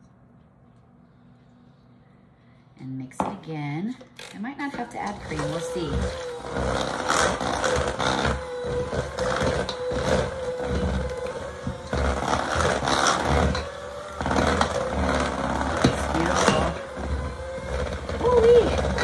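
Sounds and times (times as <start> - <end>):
electric mixer running: 4.4 - 19.0.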